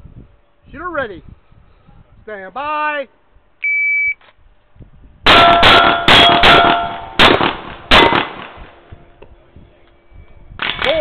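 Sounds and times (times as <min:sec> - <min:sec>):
steel plates ringing: 0:05.3 - 0:07.2
pistol shots: 0:05.3 - 0:08.7.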